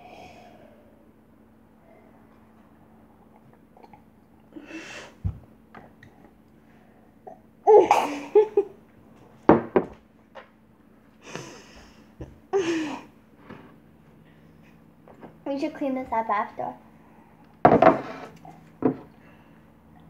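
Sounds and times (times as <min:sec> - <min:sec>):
girl giggling: 0:07.7 - 0:08.8.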